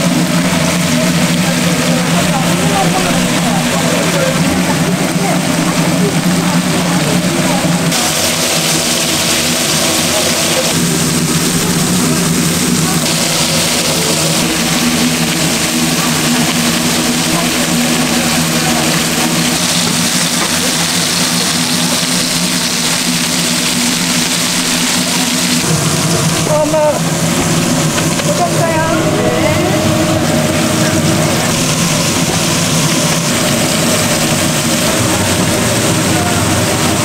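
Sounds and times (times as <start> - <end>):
machine hum: 0.0 - 37.0
loud hiss: 7.8 - 37.0.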